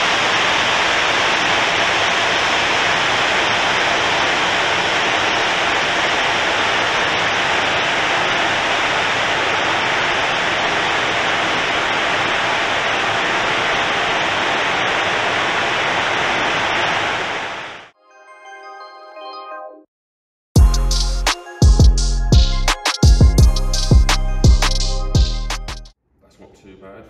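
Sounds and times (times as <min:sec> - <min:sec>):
car running on dyno rollers: 0:00.0 - 0:17.3.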